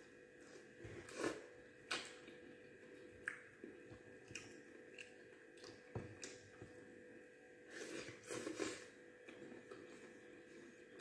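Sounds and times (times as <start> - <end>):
chewing and wet mouth sounds: 0.4 - 6.9.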